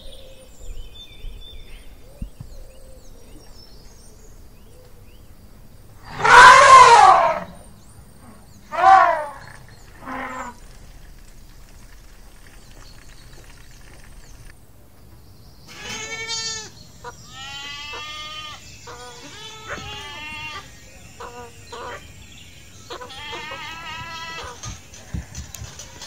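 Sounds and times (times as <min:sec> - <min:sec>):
goats bleating: 0:22.9 - 0:24.6.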